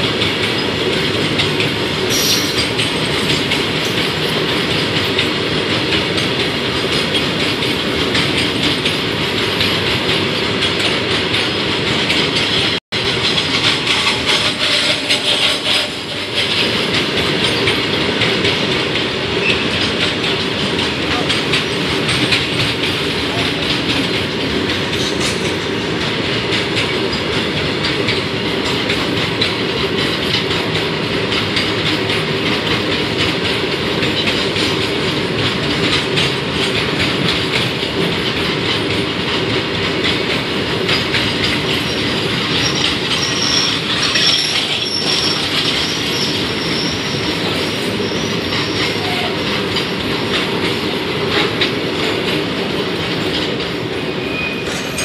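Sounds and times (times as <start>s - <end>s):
train wheels rumbling on rail: 0.0s - 55.0s
high wheel squeals: 2.1s - 2.9s, 41.7s - 49.9s, 54.0s - 55.0s.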